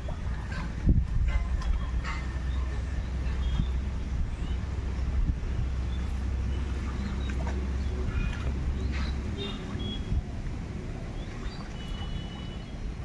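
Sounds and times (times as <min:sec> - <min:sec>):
wind buffeting microphone: 0:00.0 - 0:13.0
feet splashing through water: 0:04.6 - 0:13.0.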